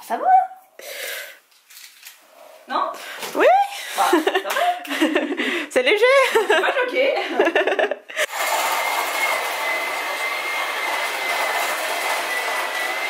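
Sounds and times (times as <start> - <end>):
people laughing: 3.9 - 5.6, 6.2 - 8.2
appliance motor whirring: 8.3 - 13.0.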